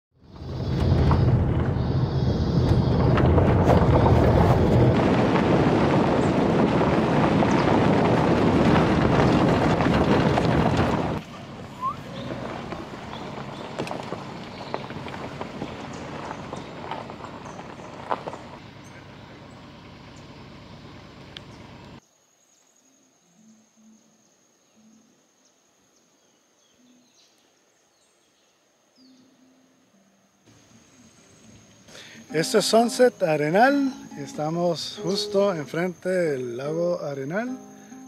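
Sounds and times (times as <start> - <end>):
car road and wind noise: 0.2 - 22.0
quiet car rumble: 0.2 - 22.0
small clicks on dirt track: 0.4 - 19.1, 21.3 - 22.0.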